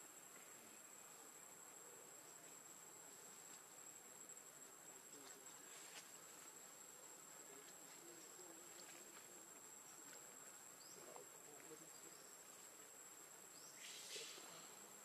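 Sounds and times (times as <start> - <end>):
short hiss: 13.8 - 14.6.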